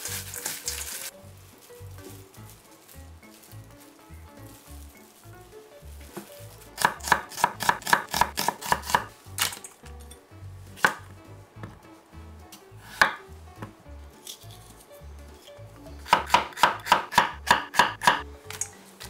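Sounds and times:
knife chopping on wooden board: 6.2s - 9.1s, 10.8s - 11.8s, 12.9s - 13.8s, 16.0s - 18.2s.

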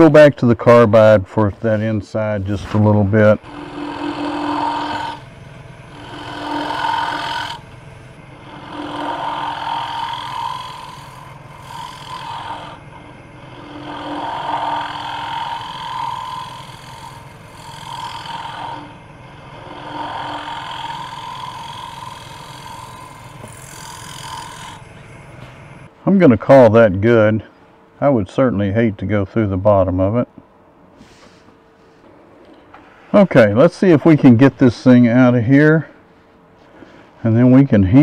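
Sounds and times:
lathe humming: 1.7s - 25.9s
tool cutting wood on lathe: 2.7s - 25.9s.

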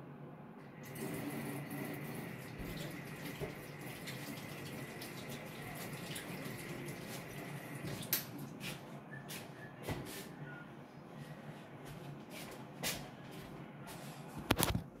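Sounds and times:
tap water running: 0.8s - 8.6s.

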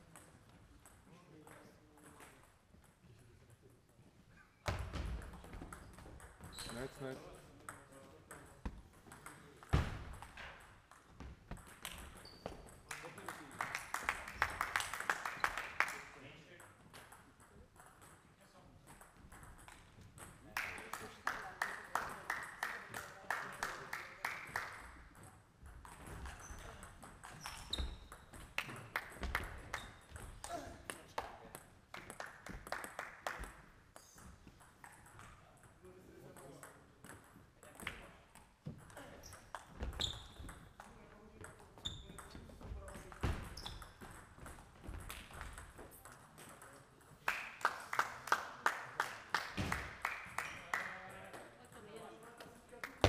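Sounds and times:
table tennis ball bouncing: 4.6s - 6.8s, 7.6s - 12.9s, 16.6s - 20.4s, 24.8s - 30.6s, 34.4s - 47.2s
shoes squeaking on floor: 6.4s - 7.0s, 12.1s - 12.8s, 26.3s - 28.4s, 39.2s - 40.5s, 41.8s - 42.4s, 43.3s - 44.0s.

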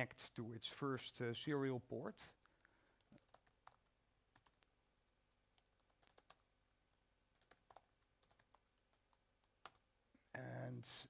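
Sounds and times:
laptop keyboard typing: 3.0s - 9.9s.

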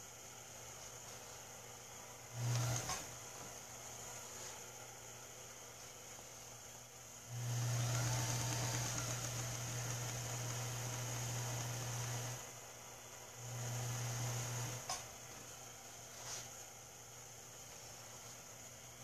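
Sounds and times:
small electric motor humming: 2.3s - 3.1s, 7.3s - 12.6s, 13.4s - 15.0s.

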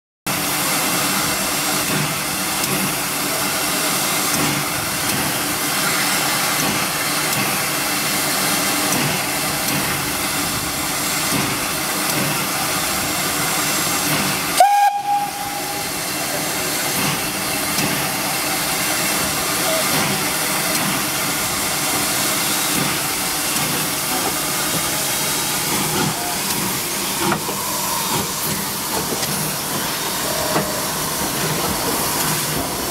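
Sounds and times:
steam hissing: 0.3s - 32.9s
steam locomotive whistle toot: 14.5s - 16.2s.

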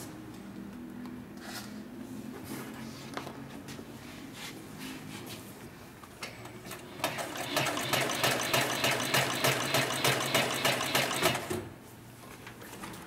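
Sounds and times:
sewing machine stitching leather: 6.7s - 11.6s.

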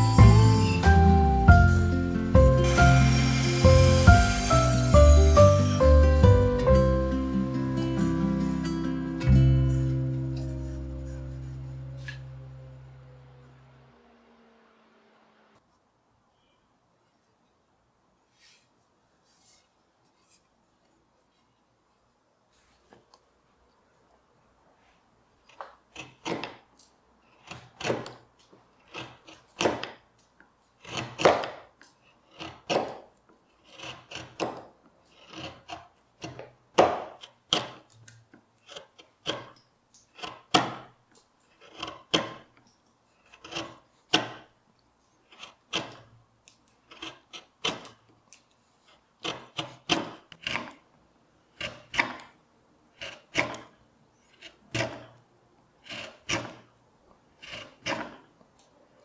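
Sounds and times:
carving gouge scraping wood: 0.0s - 1.0s, 2.6s - 5.8s, 10.4s - 12.4s, 25.4s - 26.6s, 27.2s - 30.0s, 30.8s - 44.5s, 45.1s - 58.4s.

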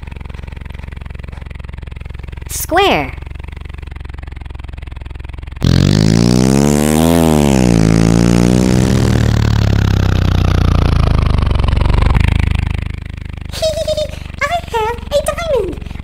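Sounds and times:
truck engine revving: 5.6s - 16.0s.

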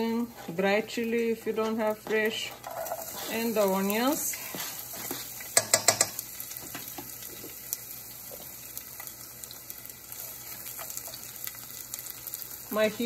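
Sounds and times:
vegetables sizzling in hot oil: 0.0s - 13.0s
spatula tapping pan: 4.4s - 7.2s.

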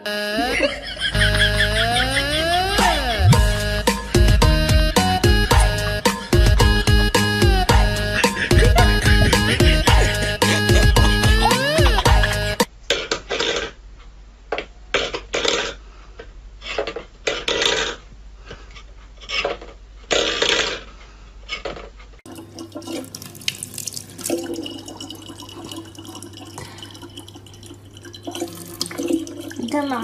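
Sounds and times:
low hum: 0.0s - 12.6s.

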